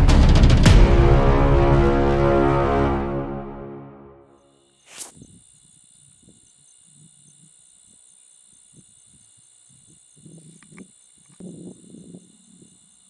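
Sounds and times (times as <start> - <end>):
crickets trilling: 4.4 - 13.0.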